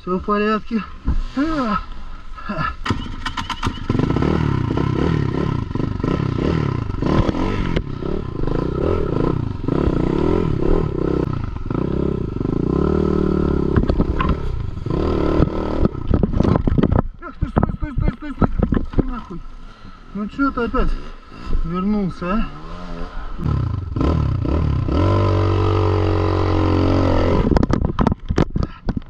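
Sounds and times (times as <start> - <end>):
motorcycle engine revving: 2.8 - 17.0, 22.1 - 27.8.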